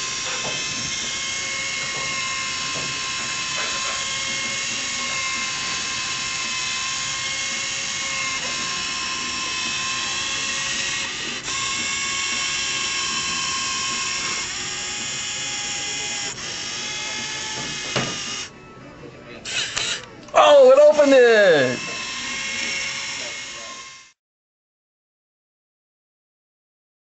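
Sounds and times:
small motors whining through gears: 0:00.0 - 0:18.6, 0:21.6 - 0:24.2.

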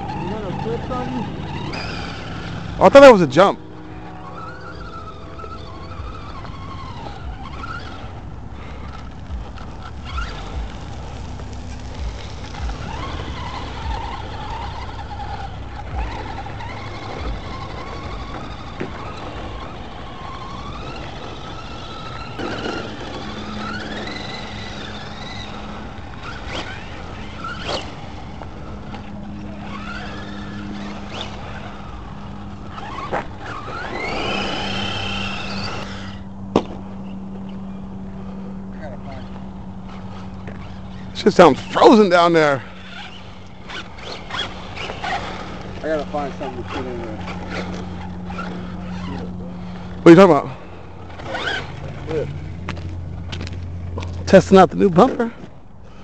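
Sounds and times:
electric motors whining: 0:00.0 - 0:56.0
toy trucks bumping over ground: 0:12.0 - 0:37.0.

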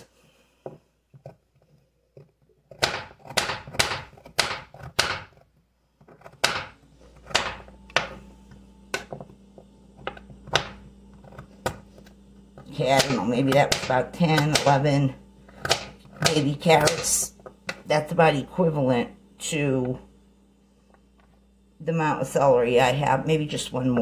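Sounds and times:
knife cutting carrots on a board: 0:02.2 - 0:05.5.

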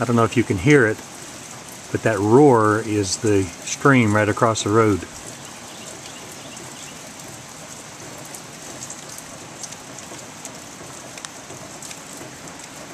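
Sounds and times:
raindrops ticking: 0:00.0 - 0:12.9
rushing stream: 0:00.0 - 0:12.9
steady rain falling: 0:00.0 - 0:12.9.

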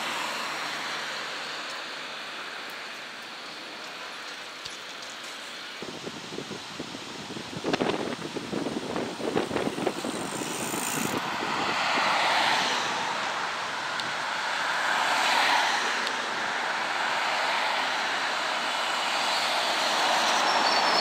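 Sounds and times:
cars passing close by: 0:00.0 - 0:03.8, 0:09.0 - 0:21.0.

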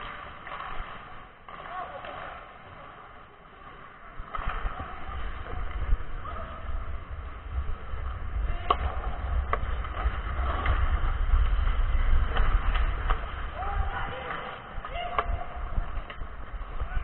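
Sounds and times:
hockey sticks clacking on puck: 0:00.0 - 0:05.9, 0:08.1 - 0:16.9
skate blades on ice: 0:00.0 - 0:17.0
wind rumbling on microphone: 0:04.1 - 0:17.0.

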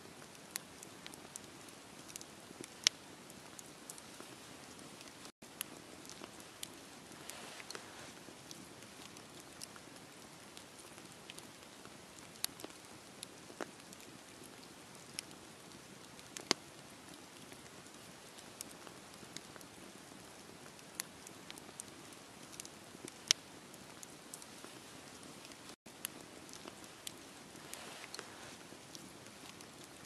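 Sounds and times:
wood fire crackling and popping: 0:00.0 - 0:30.0
low rush of fire: 0:00.1 - 0:09.5, 0:22.6 - 0:29.7.

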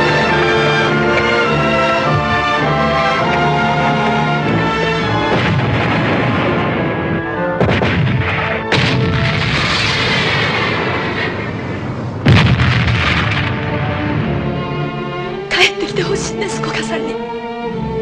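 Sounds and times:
orchestral music: 0:00.0 - 0:10.6, 0:12.9 - 0:18.0
artillery blasts: 0:05.0 - 0:14.5.

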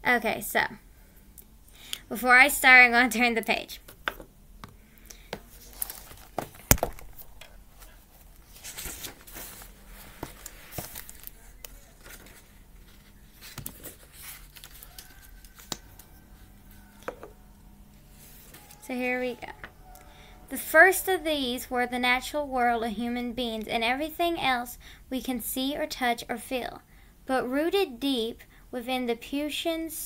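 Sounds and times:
book pages turning: 0:05.2 - 0:17.2, 0:18.1 - 0:18.8.

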